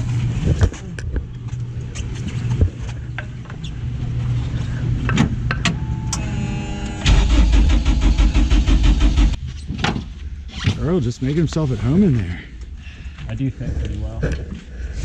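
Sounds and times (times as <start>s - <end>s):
steady low hum: 0.0s - 15.0s
ignition electric buzz: 5.7s - 9.4s
starter cranking engine: 7.0s - 9.4s.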